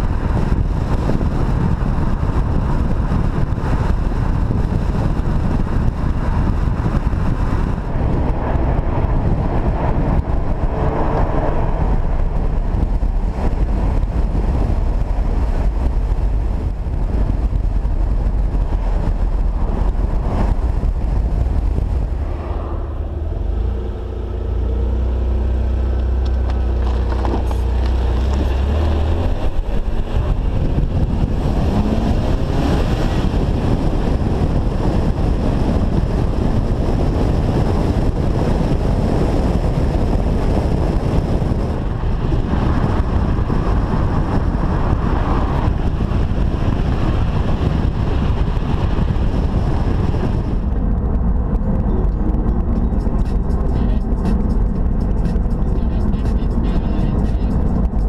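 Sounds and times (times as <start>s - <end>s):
tyre noise: 0.0s - 35.1s
car engine drone: 0.0s - 58.0s
wind on microphone: 0.0s - 58.0s.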